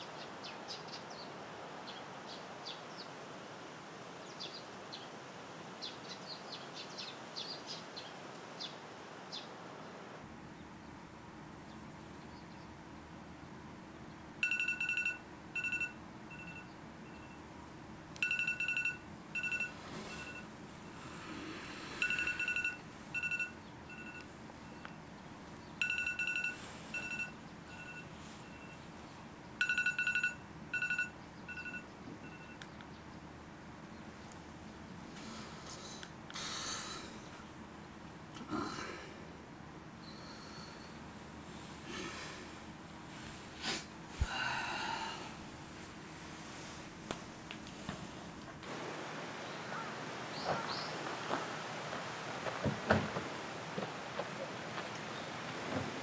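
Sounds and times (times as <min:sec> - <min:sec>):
small birds chirping: 0:11.6 - 0:14.2, 0:49.4 - 0:51.5, 0:54.6 - 0:55.5
electronic phone beeps: 0:14.4 - 0:17.4, 0:18.2 - 0:20.5, 0:22.0 - 0:25.0, 0:25.8 - 0:28.8, 0:29.6 - 0:32.7.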